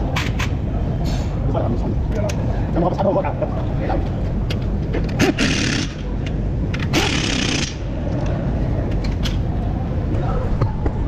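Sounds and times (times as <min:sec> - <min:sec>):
pneumatic impact wrench bursts: 0:05.2 - 0:06.1, 0:06.8 - 0:07.9.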